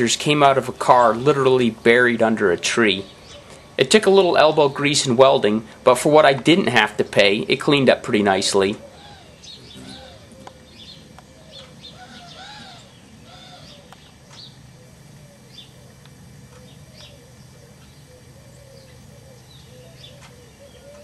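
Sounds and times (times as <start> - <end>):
faint low hum: 0.0 - 21.0
lower bird calls: 2.6 - 3.8, 8.3 - 21.0
high bird chirps: 8.9 - 21.0.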